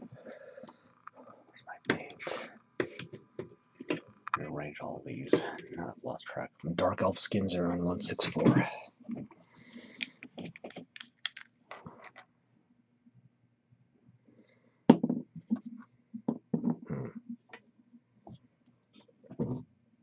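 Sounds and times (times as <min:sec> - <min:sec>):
plastic bottles knocking on table: 0:14.9 - 0:15.3.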